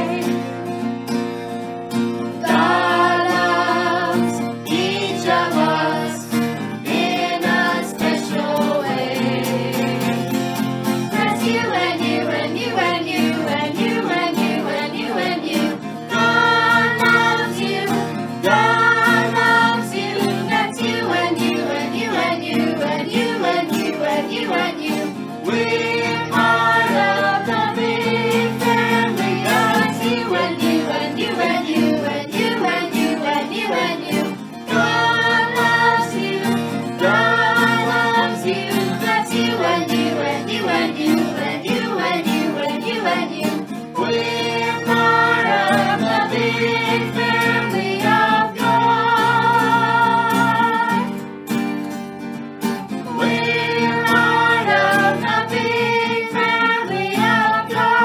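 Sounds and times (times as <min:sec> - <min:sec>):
children singing: 0:00.0 - 0:00.5, 0:02.4 - 0:10.4, 0:11.1 - 0:51.2, 0:53.0 - 0:58.0
acoustic guitar: 0:00.0 - 0:58.0.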